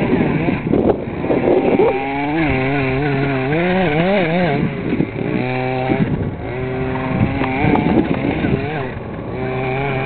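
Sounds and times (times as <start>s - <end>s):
rc buggy engine revving: 0.0s - 10.0s.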